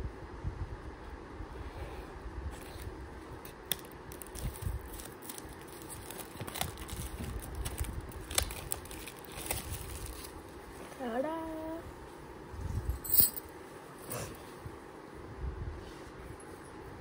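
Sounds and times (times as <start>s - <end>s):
plastic wrap crinkling and tearing: 3.4s - 10.4s.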